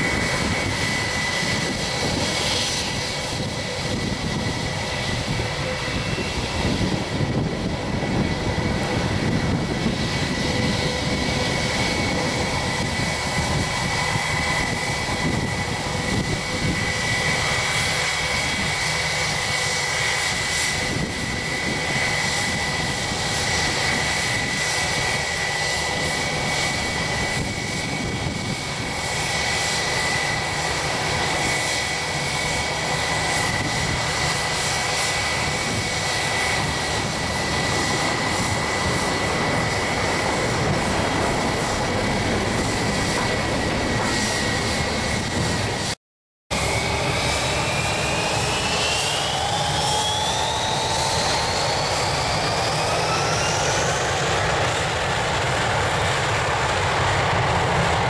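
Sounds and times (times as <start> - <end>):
jet engines idling: 0.0 - 46.0.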